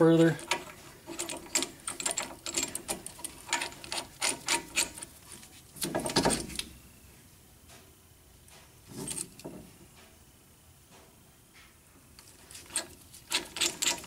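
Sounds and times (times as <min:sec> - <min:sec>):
tool clattering: 0:00.2 - 0:05.2, 0:05.8 - 0:06.6, 0:12.2 - 0:14.0
tool scraping: 0:00.2 - 0:06.6, 0:12.2 - 0:14.0.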